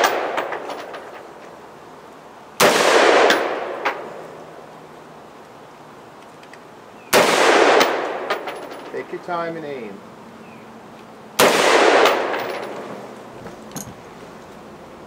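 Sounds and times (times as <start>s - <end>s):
rifle shot: 0.0s - 0.7s, 2.6s - 4.2s, 7.1s - 8.4s, 11.4s - 12.8s.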